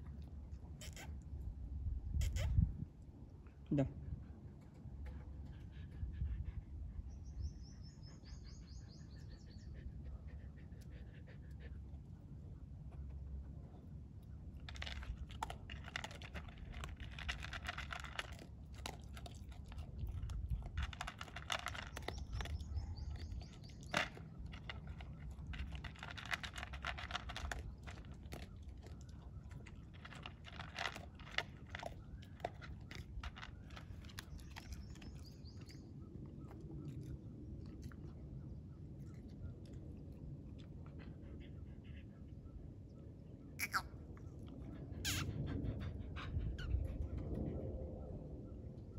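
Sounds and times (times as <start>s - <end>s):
dog crunching food from bowl: 14.5s - 35.8s
low rumble: 44.0s - 48.9s.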